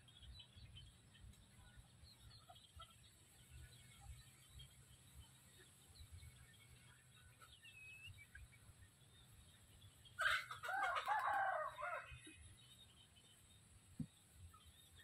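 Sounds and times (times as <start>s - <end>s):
faint high bird chirp: 0.0s - 15.0s
rooster crowing: 10.2s - 12.2s.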